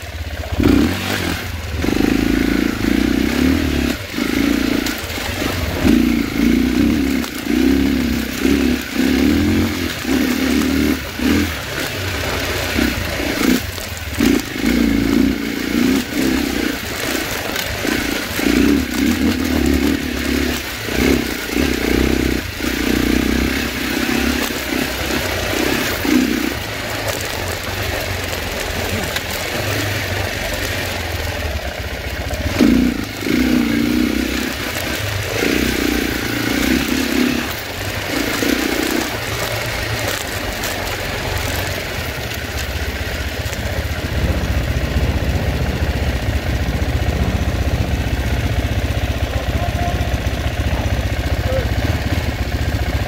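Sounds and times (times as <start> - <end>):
dirt bike engine revving: 0.0 - 53.0
bike clattering over rough ground: 24.1 - 44.2.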